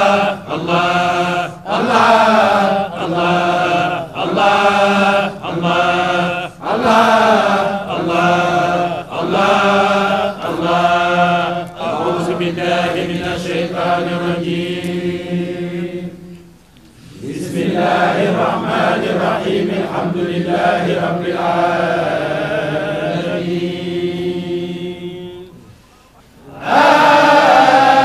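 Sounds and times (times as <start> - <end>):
men chanting in unison: 0.0 - 16.2, 26.4 - 28.0.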